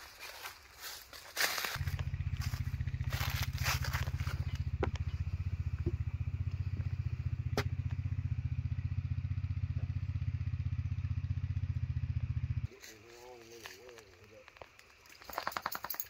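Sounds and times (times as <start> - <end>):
footsteps crunching on dry leaves: 0.0 - 5.4, 12.7 - 14.8
pulsing low drone: 1.8 - 12.7.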